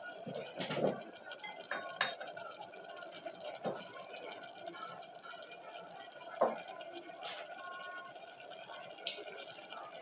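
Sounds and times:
sauce bubbling in a pot: 0.0 - 10.0
spoon knocking in a pot: 0.2 - 2.4, 4.7 - 5.6, 6.3 - 6.7.

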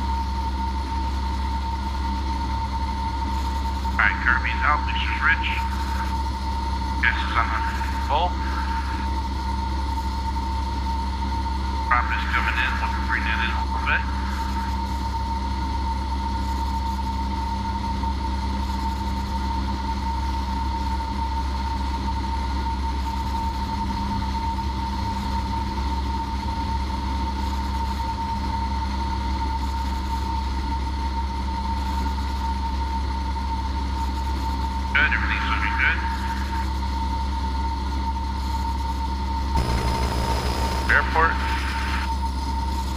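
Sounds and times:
airplane engine and propeller droning: 0.0 - 42.9
thin high whine: 39.6 - 42.9.

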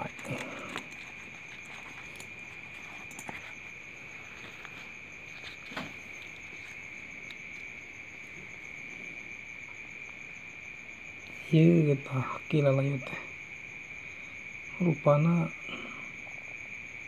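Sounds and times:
small objects tapping and rustling: 0.0 - 7.5
crickets chirping: 0.0 - 17.0.

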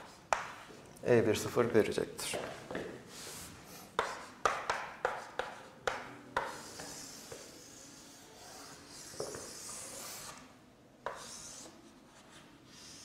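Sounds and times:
chalk tapping on board: 0.0 - 0.7, 4.0 - 7.7, 9.0 - 10.4, 11.0 - 11.7
scratchy writing on board: 3.1 - 13.0.

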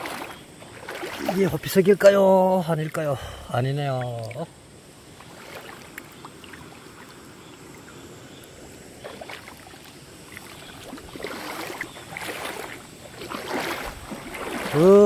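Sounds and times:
splashing steps in water: 0.0 - 2.1, 5.2 - 7.8, 9.0 - 15.0
water sloshing around legs: 0.0 - 15.0.

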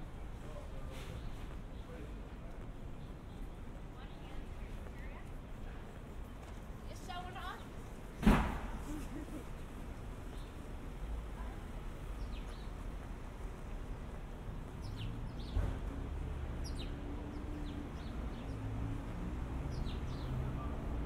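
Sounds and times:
low traffic rumble: 0.0 - 21.0
thump: 8.2 - 8.8
small birds chirping: 9.6 - 20.7.

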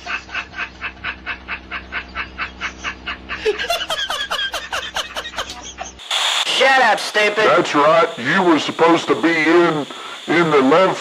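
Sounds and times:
man laughing uncontrollably: 0.0 - 6.0.

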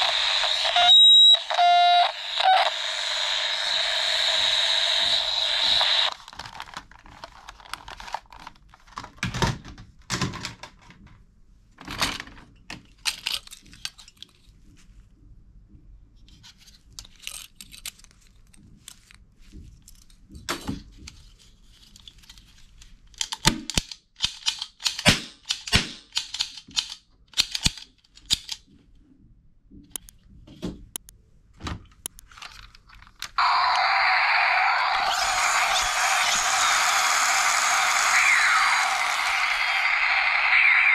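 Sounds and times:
electronic toy sound: 0.0 - 6.2, 33.4 - 40.9
plastic toys clattering in box: 6.2 - 10.9.

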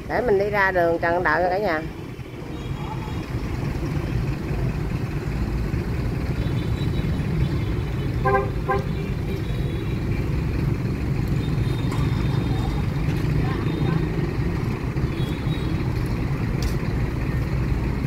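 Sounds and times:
bus engines idling: 0.0 - 18.0
vehicle horn toots: 6.5 - 10.0.

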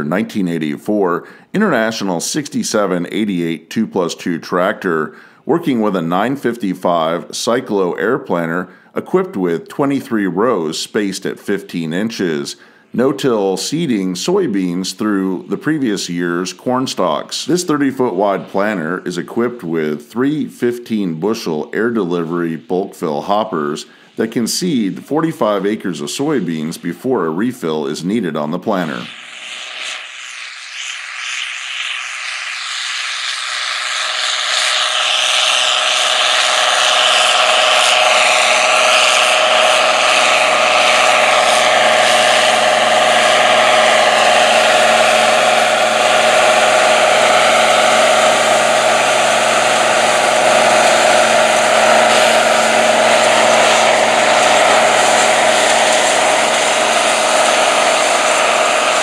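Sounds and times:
strong steady whine: 0.0 - 10.7, 11.3 - 59.0
tractor diesel engine running: 32.2 - 59.0.

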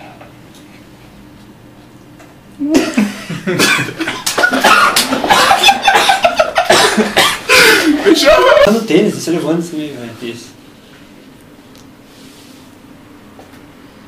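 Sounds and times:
man laughing hard: 2.6 - 8.7.

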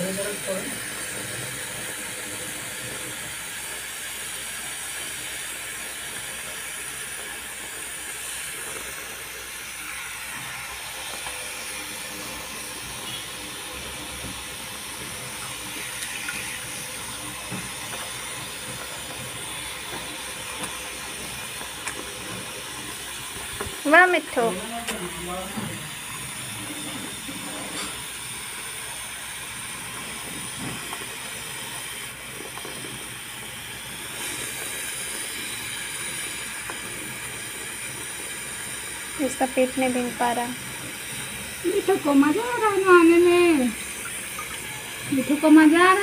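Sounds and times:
tap water running and splashing: 0.0 - 46.0.

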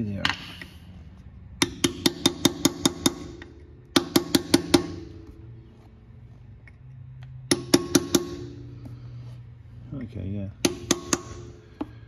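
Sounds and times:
hammer tapping on metal: 1.6 - 5.3, 7.5 - 8.7, 10.6 - 12.0.

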